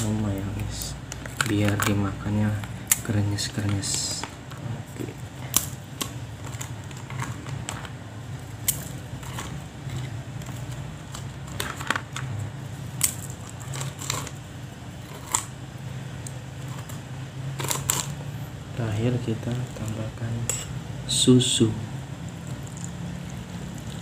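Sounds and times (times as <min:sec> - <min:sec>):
crackers snapping: 0:00.0 - 0:14.4
steady low hum: 0:00.0 - 0:24.0.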